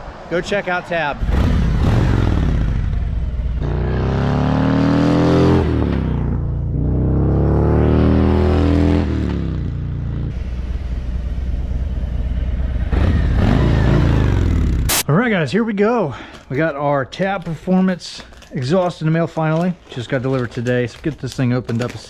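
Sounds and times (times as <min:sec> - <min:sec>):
motorcycle engine accelerating: 0:01.2 - 0:15.0.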